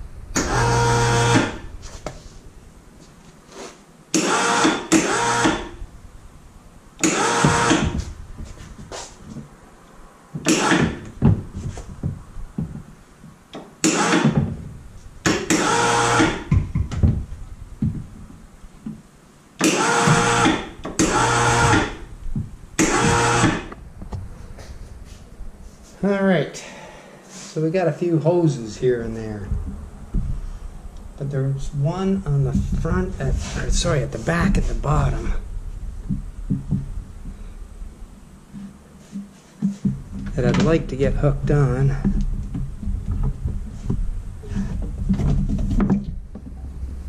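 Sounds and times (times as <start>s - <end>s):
electric motor whining: 0.4s - 1.6s, 4.2s - 5.8s, 7.0s - 8.0s, 15.5s - 16.5s, 19.6s - 22.1s, 22.8s - 23.8s.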